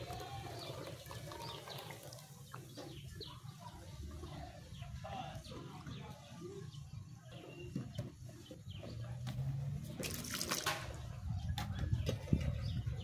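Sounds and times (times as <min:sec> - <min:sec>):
puree splashing into soup: 0:10.0 - 0:11.0.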